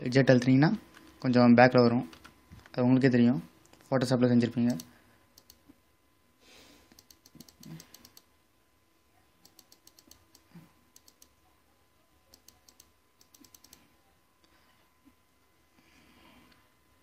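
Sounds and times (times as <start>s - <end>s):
computer mouse clicks: 4.7s - 5.6s, 6.9s - 8.3s, 9.4s - 11.4s, 12.3s - 13.9s.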